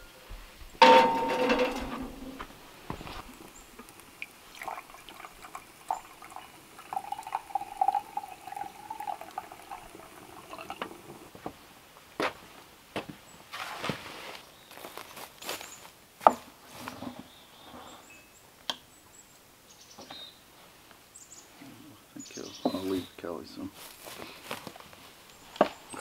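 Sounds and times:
metal pan ringing: 0.8 - 2.4
coffee pot clinking: 0.8 - 11.3
coffee pouring into mug: 0.8 - 11.4.

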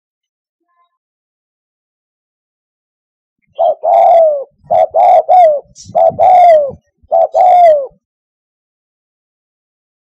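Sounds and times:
dove cooing: 3.5 - 8.0.

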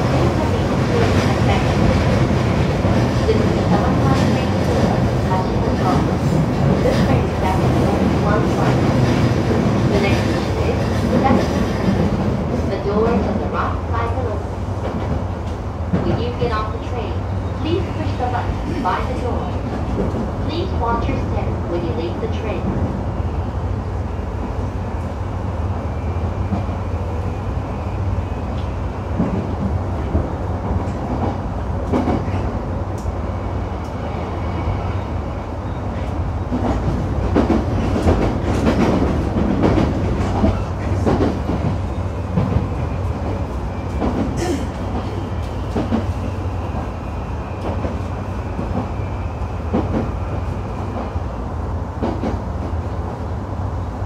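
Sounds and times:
train wheels rumbling on rails: 0.0 - 54.0
rail joint clicks and knocks: 18.1 - 20.7, 28.5 - 33.2, 36.0 - 46.9, 49.6 - 50.2, 51.9 - 53.0.

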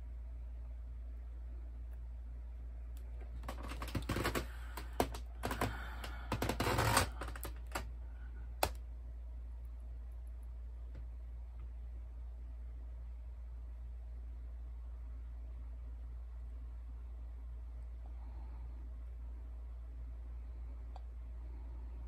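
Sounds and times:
plastic dolls clicking and clattering: 3.4 - 7.8.

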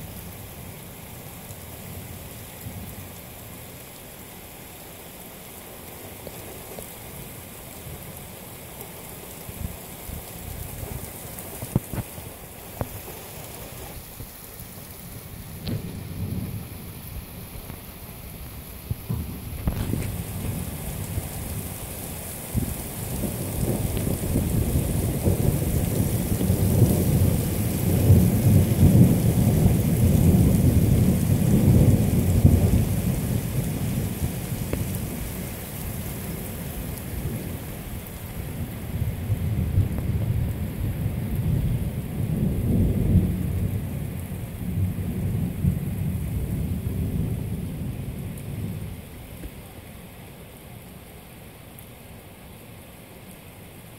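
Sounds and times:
steady rain hissing: 0.0 - 53.9
thunder rolling: 15.6 - 17.3, 18.9 - 21.5.

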